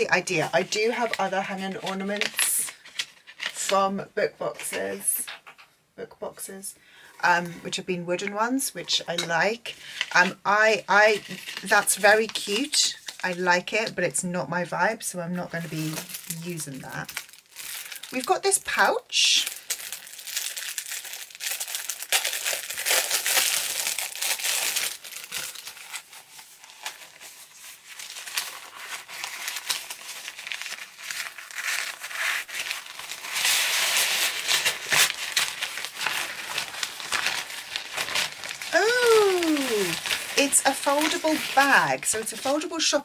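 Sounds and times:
thin plastic bag crinkling: 15.6 - 42.8.

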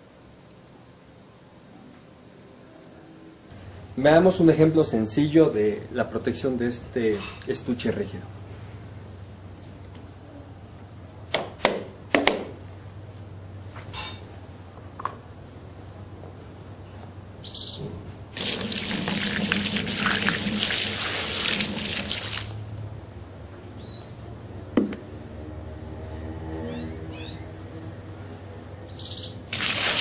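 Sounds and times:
water splashing on plastic lid: 18.4 - 22.6, 29.5 - 30.0.

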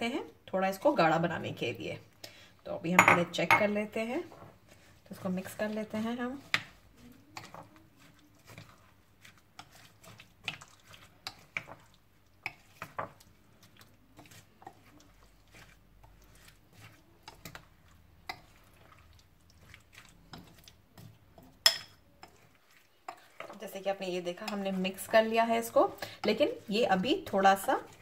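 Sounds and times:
wet batter sounds: 0.0 - 28.0.

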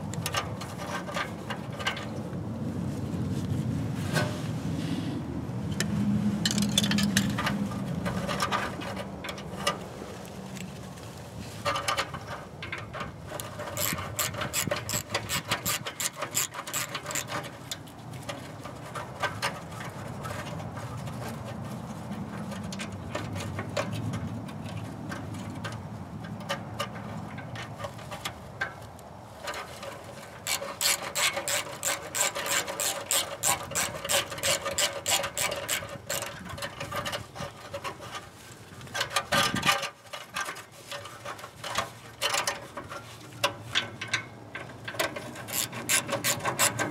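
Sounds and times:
socket ratchet clicking: 13.8 - 17.3, 30.5 - 36.3, 45.5 - 46.9.

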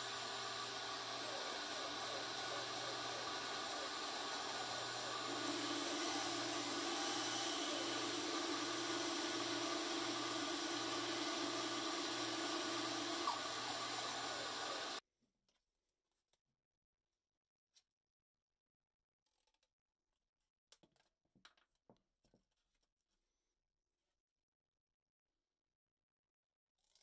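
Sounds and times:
bandsaw cutting wood: 0.0 - 15.0.

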